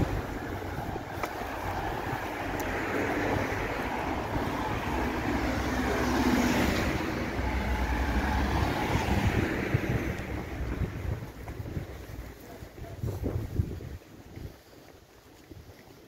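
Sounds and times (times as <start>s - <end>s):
wind rumble on microphone: 0.0s - 16.0s
car driving past: 1.4s - 10.5s.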